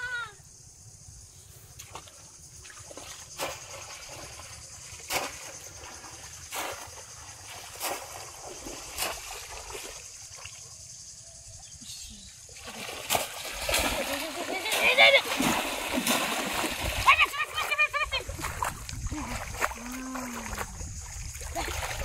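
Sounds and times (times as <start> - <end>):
water sloshing around legs: 1.8 - 10.8, 12.5 - 22.0
fish trap splashing into water: 2.8 - 10.6, 12.6 - 17.7.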